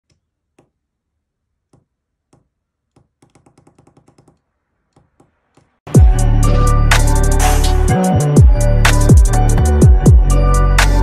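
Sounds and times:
loud music: 5.9 - 11.0.

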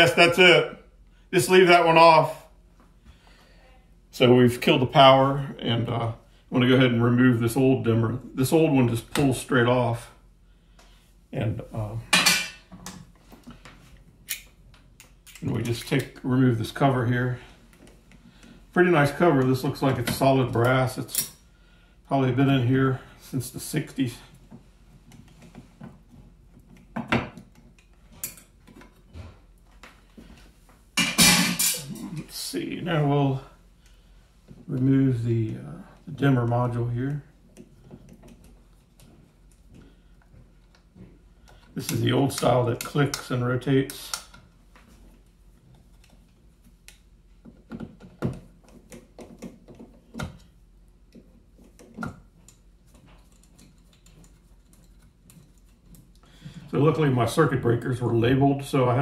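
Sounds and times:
small metallic clicks and scrapes: 51.1 - 56.2.

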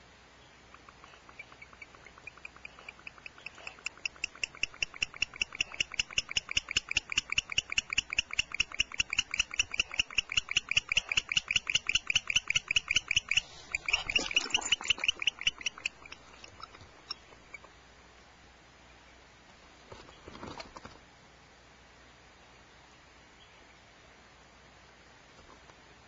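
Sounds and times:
rustle: 0.0 - 26.0
owl chirping rapidly: 0.7 - 17.7.

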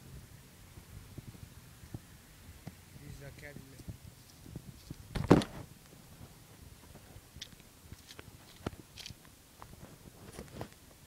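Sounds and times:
phone handling noise: 5.1 - 5.6.

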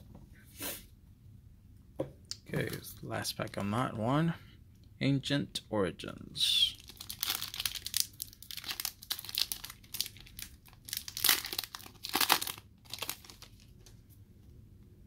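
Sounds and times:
foil wrapper crinkling: 6.8 - 13.8.

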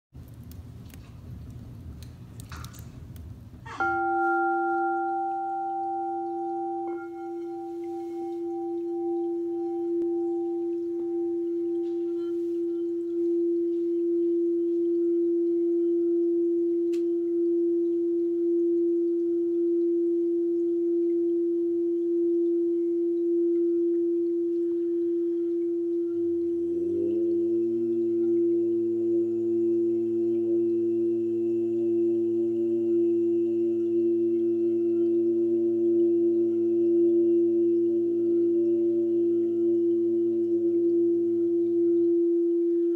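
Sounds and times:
singing bowl ringing: 3.7 - 42.9
low chanted voice drone: 26.8 - 30.1.

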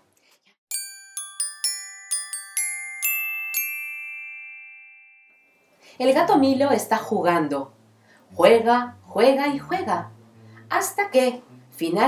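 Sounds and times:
glockenspiel-like chime flourish: 0.7 - 5.6.

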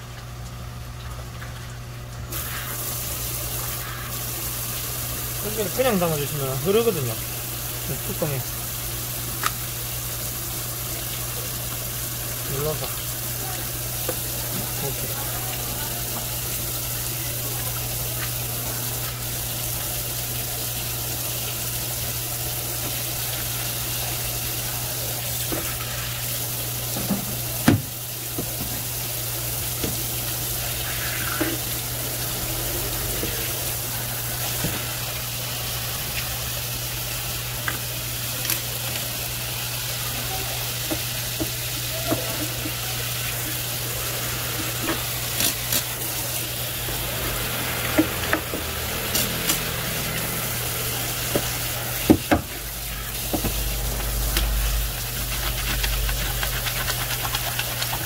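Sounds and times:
low hum: 30.3 - 37.6, 52.6 - 57.7.

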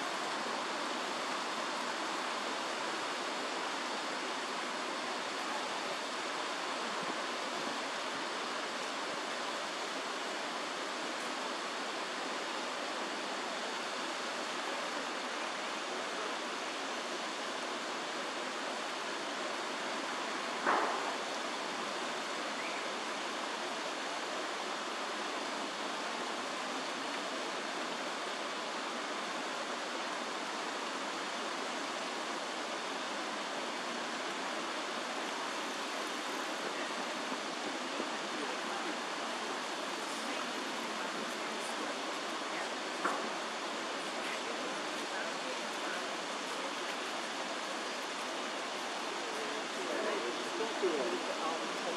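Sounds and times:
running water rushing: 0.0 - 51.9.

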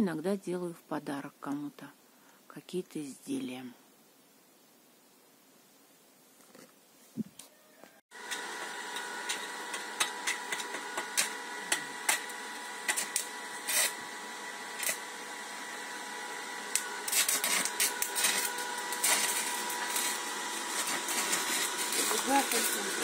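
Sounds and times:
welding crackles and pops: 8.1 - 14.1, 14.7 - 15.0, 16.6 - 23.0
arc welding hiss: 16.6 - 23.0.

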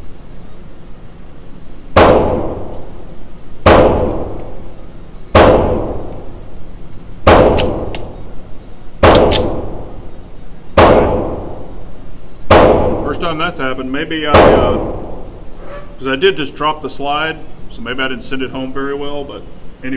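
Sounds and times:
pistol gunshots echoing indoors: 1.9 - 2.9, 3.6 - 4.6, 5.3 - 6.2, 7.2 - 8.0, 9.0 - 10.0, 10.8 - 11.7, 12.5 - 13.1, 14.3 - 15.3.

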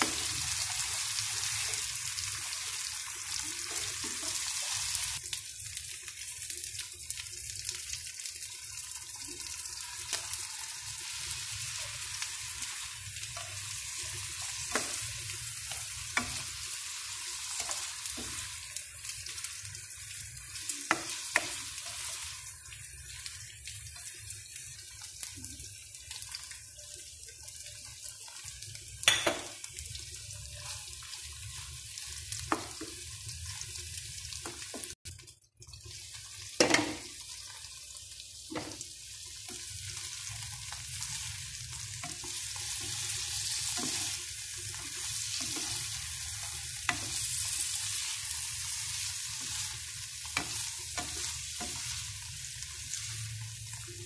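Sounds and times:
tofu sizzling in a wok: 0.0 - 54.0
spatula scraping a pan: 39.5 - 53.9.

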